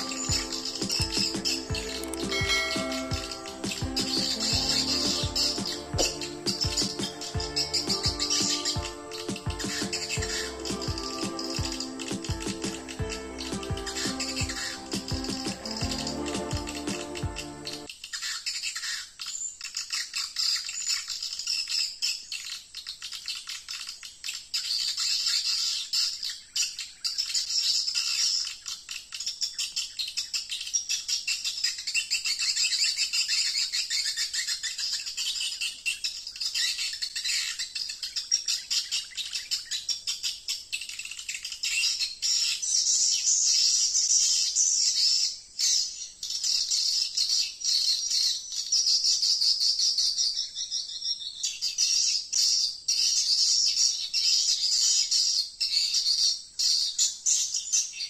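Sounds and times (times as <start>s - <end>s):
swiftlets twittering: 0.0s - 17.9s.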